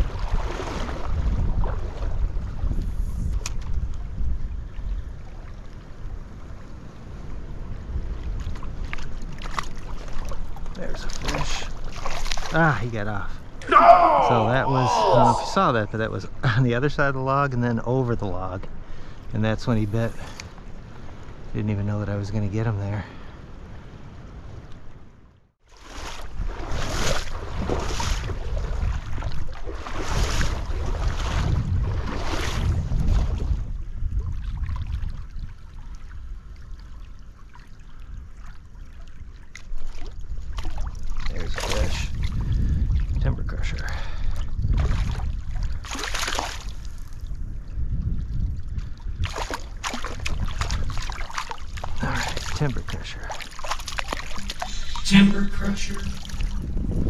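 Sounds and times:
wind buffeting microphone: 0.0s - 12.0s, 26.2s - 37.1s, 40.1s - 45.9s, 46.7s - 53.1s, 56.2s - 57.0s
stream water: 0.0s - 17.3s, 17.9s - 22.2s, 24.4s - 57.0s
fish splashing in water: 45.8s - 46.8s, 49.2s - 52.6s, 53.3s - 54.8s
flowing creek rushing: 53.3s - 56.9s.

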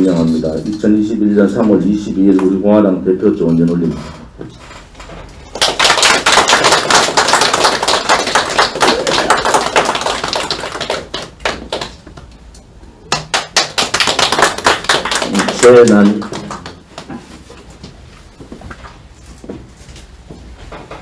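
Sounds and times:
small group clapping: 5.4s - 12.4s, 13.0s - 17.4s.

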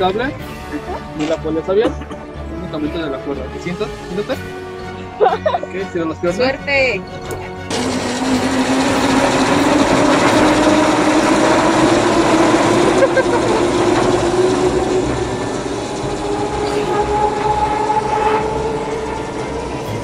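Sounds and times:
zip-line trolley whirring: 7.7s - 20.0s.

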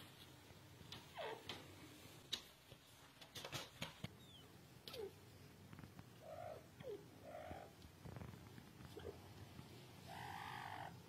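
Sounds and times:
bird calling softly: 6.1s - 7.8s, 10.0s - 11.0s.

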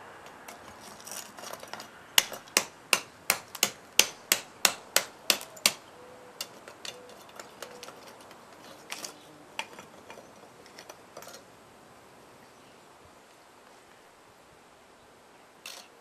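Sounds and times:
tools clinking against metal: 6.4s - 11.4s, 15.7s - 16.0s.

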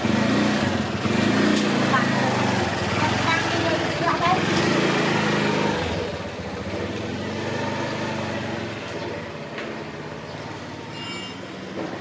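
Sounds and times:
small engine running: 0.0s - 9.4s.

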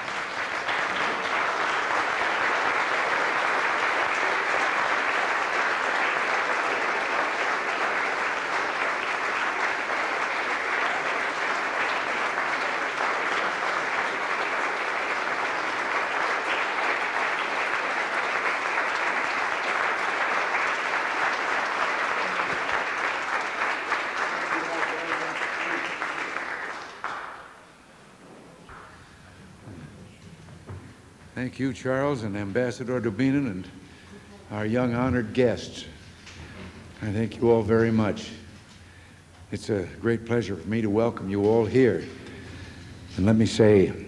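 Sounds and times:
audience applauding: 0.0s - 27.8s.

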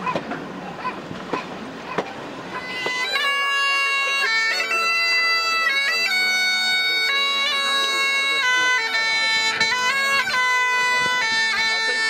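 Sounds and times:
bagpipes playing: 2.5s - 12.0s.

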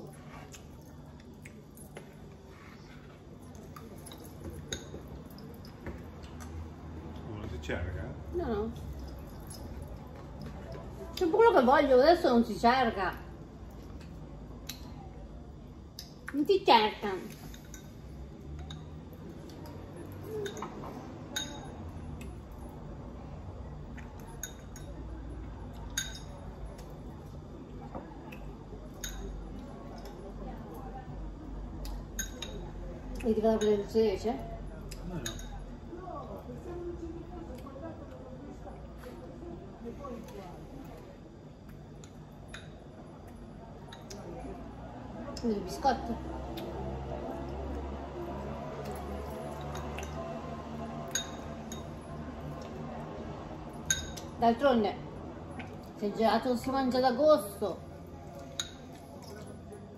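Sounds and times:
spoons clinking against dishes: 17.3s - 19.0s, 20.2s - 21.8s, 24.2s - 25.0s, 25.8s - 26.5s, 29.0s - 30.1s, 32.1s - 32.7s, 35.2s - 35.7s, 51.0s - 52.0s, 53.8s - 54.4s, 58.4s - 59.4s.

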